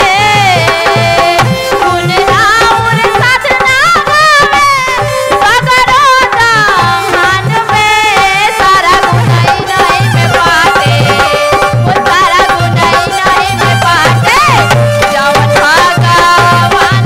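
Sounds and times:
woman singing devotional song: 0:00.0 - 0:17.0.

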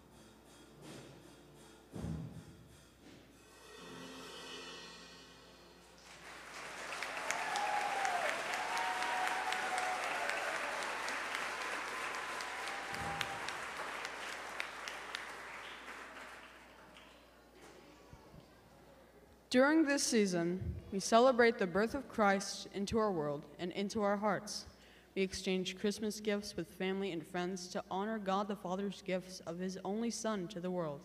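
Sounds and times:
drum hit: 0:01.9 - 0:02.6
audience applauding: 0:06.0 - 0:17.2
people whooping: 0:06.6 - 0:16.2.

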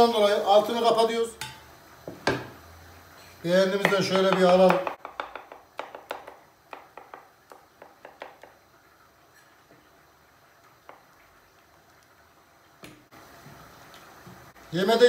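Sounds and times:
wooden spoon tapping ceramic plate: 0:03.8 - 0:08.6.

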